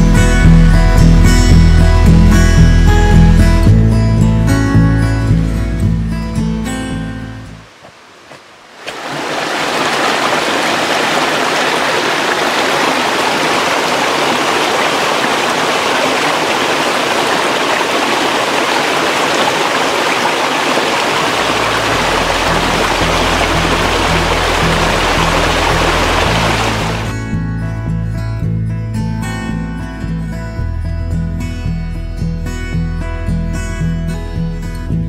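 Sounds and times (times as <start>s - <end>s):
creek rushing over rocks: 7.6s - 27.2s.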